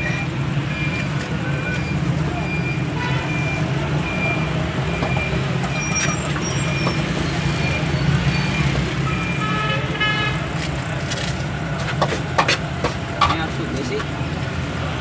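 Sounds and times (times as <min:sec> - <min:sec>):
road traffic drone: 0:00.0 - 0:15.0
vehicle horn: 0:03.0 - 0:03.6, 0:09.3 - 0:10.5.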